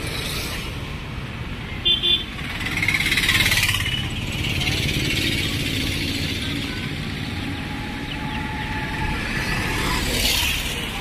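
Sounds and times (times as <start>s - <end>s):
traffic engines rumbling: 0.0s - 11.0s.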